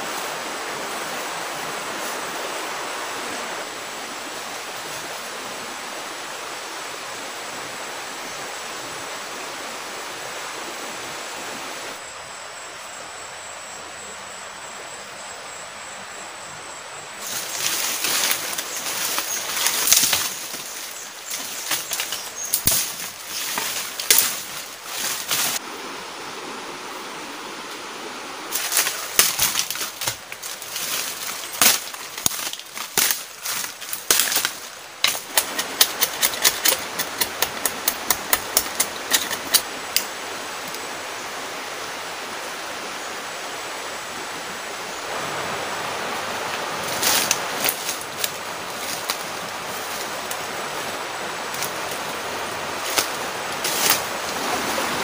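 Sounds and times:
steady background hiss: 0.0s - 55.0s
wooden poles knocking and rustling: 17.2s - 25.6s, 28.5s - 39.6s.

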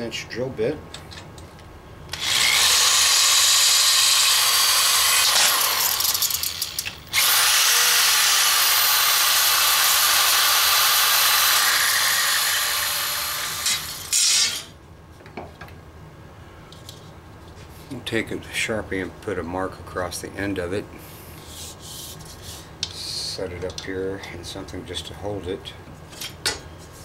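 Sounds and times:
electric drill boring through metal: 2.1s - 14.7s.

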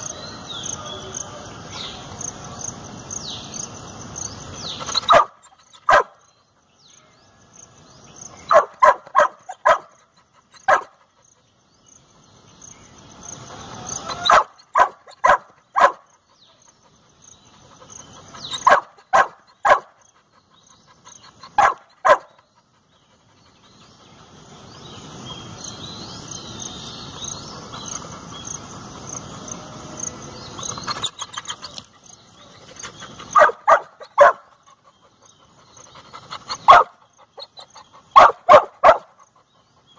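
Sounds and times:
bird chirps: 0.0s - 39.9s
dog barking: 5.1s - 6.2s, 8.5s - 10.0s, 10.6s - 11.0s, 14.2s - 16.1s, 18.6s - 20.0s, 21.5s - 22.4s, 33.3s - 34.5s, 36.6s - 39.3s.

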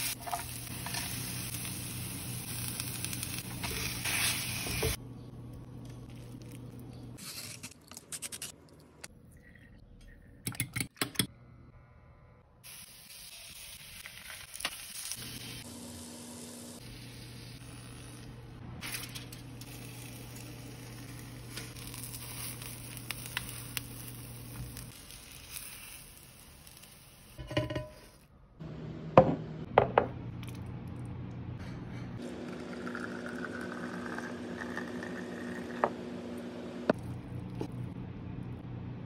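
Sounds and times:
food sizzling in a frying pan: 0.0s - 5.0s, 12.6s - 28.2s.

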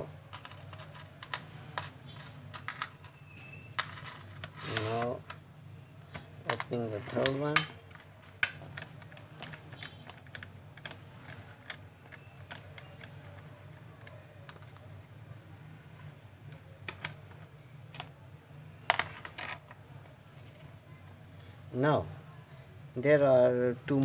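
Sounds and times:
plastic clatter: 0.3s - 3.2s, 3.8s - 5.4s, 6.1s - 14.9s, 18.8s - 19.8s.

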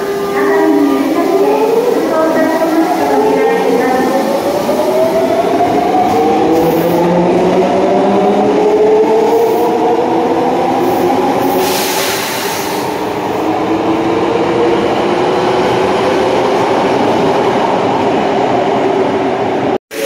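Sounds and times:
burst of hiss: 11.5s - 13.0s.

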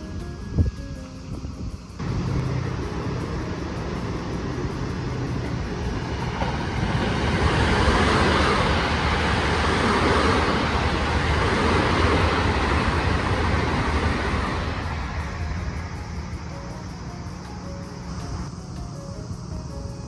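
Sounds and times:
vehicle passing by: 2.0s - 16.5s.

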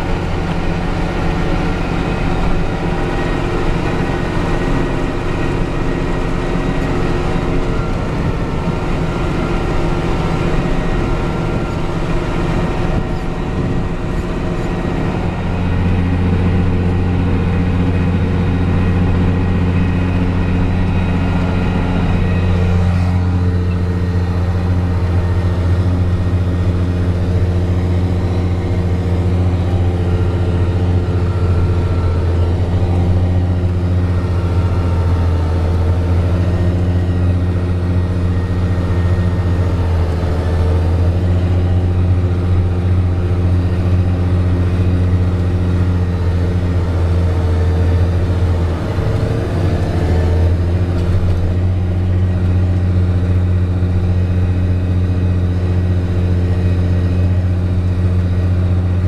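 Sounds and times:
tractor diesel engine drone: 0.0s - 59.0s.

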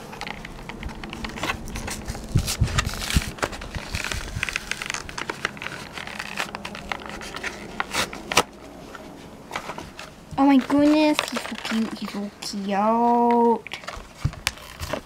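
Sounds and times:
low thumps: 0.0s - 5.3s
plastic blister pack crinkling: 0.0s - 15.0s.

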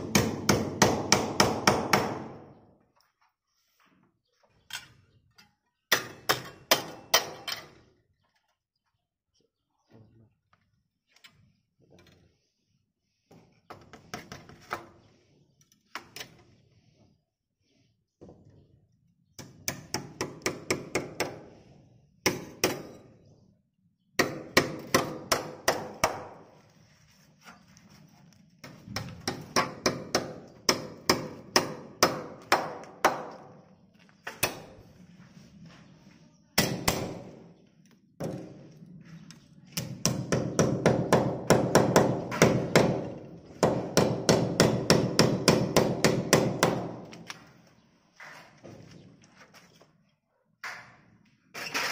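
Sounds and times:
hammer striking nails: 0.0s - 2.5s, 5.9s - 7.6s, 19.4s - 21.5s, 22.2s - 23.0s, 24.2s - 26.5s, 28.6s - 33.6s, 39.8s - 47.4s.

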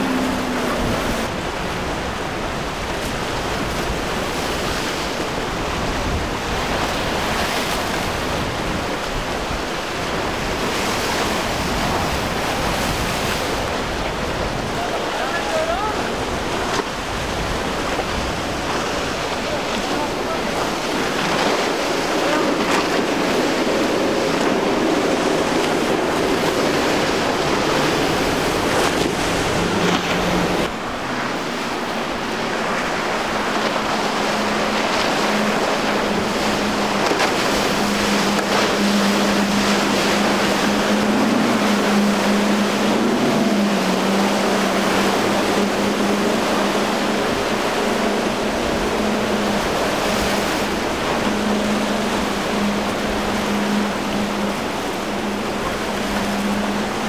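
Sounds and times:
outboard motors running: 0.0s - 57.0s
surf: 0.0s - 57.0s
wind noise on microphone: 0.0s - 57.0s.

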